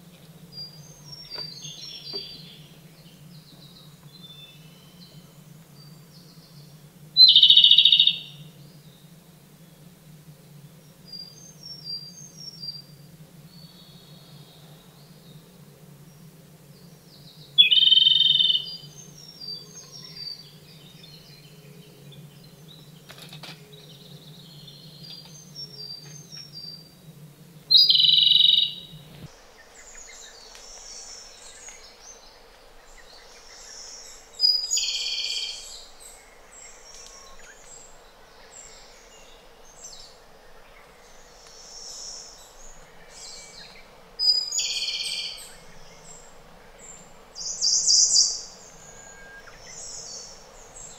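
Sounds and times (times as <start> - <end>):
robin singing trilled phrases: 7.2 - 8.4, 17.6 - 20.6, 27.7 - 29.0.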